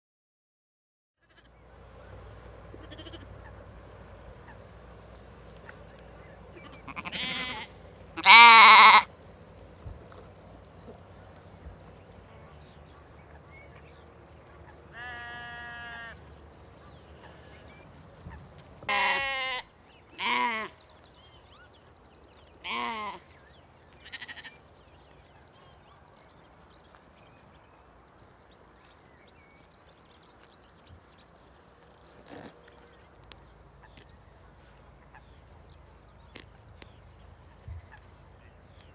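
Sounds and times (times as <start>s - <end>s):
sheep bleating: 1.2s - 1.6s, 2.7s - 3.3s, 6.6s - 9.1s, 14.9s - 16.2s, 18.9s - 20.8s, 22.6s - 23.3s, 23.9s - 24.6s.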